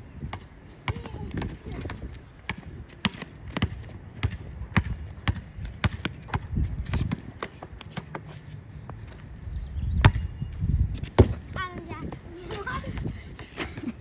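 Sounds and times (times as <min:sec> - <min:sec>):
basketball bouncing: 0:00.3 - 0:08.2.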